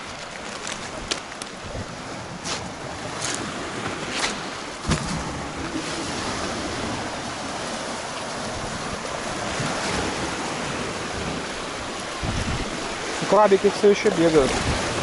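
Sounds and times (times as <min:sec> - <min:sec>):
waves washing onto pebbles: 0:00.0 - 0:15.0
footsteps on pebbles: 0:02.4 - 0:03.4.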